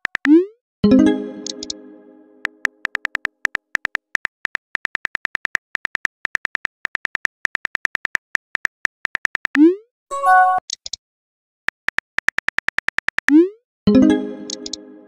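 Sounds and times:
keyboard tap clicks: 0:01.4 - 0:01.8, 0:02.4 - 0:07.8, 0:14.4 - 0:14.8.

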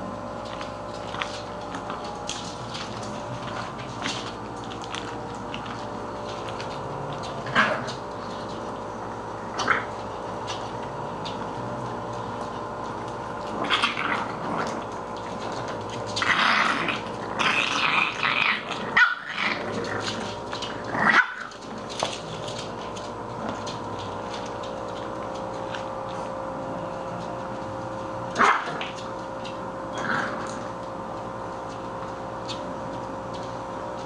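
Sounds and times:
puppies growling: 0:00.0 - 0:34.0
puppies barking: 0:02.6 - 0:24.6, 0:28.2 - 0:29.1.

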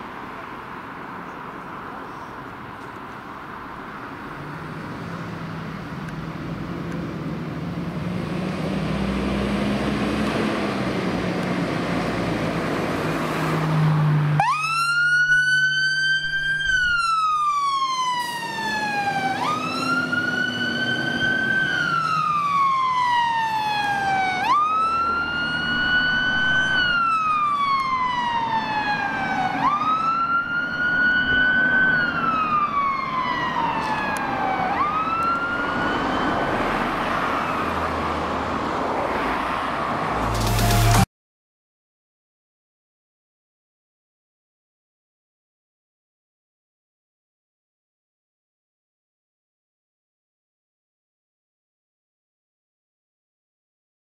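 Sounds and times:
fire engine siren wailing: 0:08.3 - 0:41.0
diesel engine running: 0:40.2 - 0:41.0.

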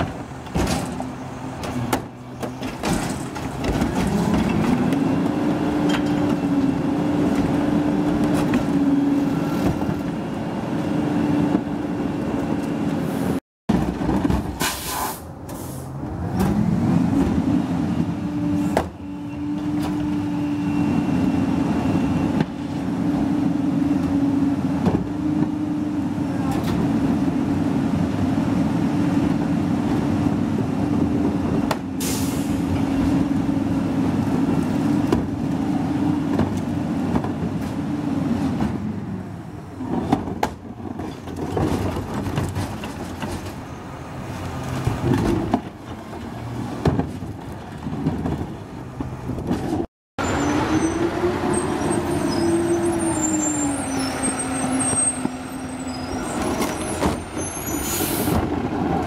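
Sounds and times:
carts and metal clanking: 0:00.0 - 0:05.0, 0:39.7 - 0:59.0.

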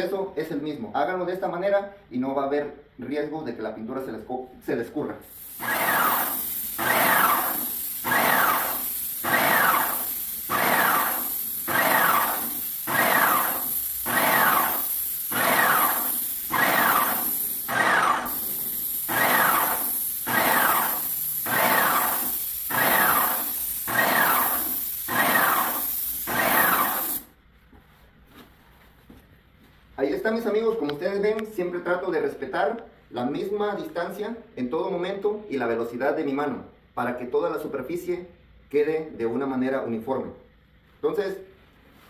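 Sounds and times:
paint sprayer hissing: 0:05.2 - 0:27.4
pulsing pump whine: 0:05.6 - 0:18.3, 0:19.1 - 0:22.1, 0:22.7 - 0:24.5, 0:25.1 - 0:27.0.

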